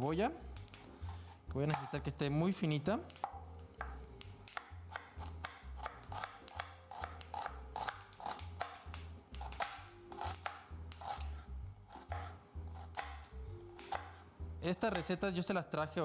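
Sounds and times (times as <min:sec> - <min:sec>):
knife chopping onion: 0:00.6 - 0:02.1, 0:03.0 - 0:14.2.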